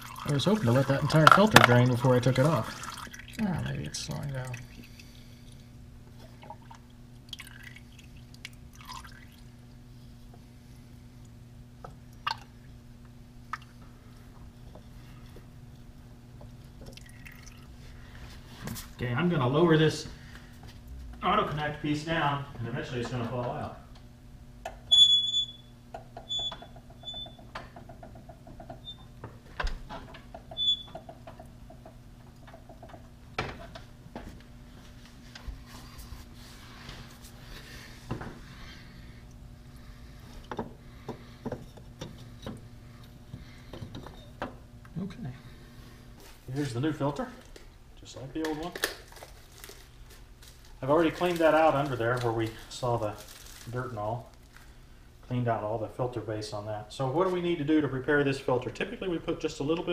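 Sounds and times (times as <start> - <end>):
oil dripping: 0.0 - 10.4, 11.2 - 18.2
steady low hum: 0.0 - 59.9.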